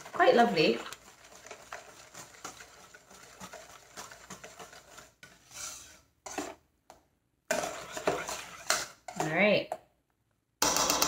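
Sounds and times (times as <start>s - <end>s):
whisk wires clicking on metal bowl: 0.0s - 5.3s
wire whisk beating batter: 0.0s - 6.6s, 7.5s - 9.3s.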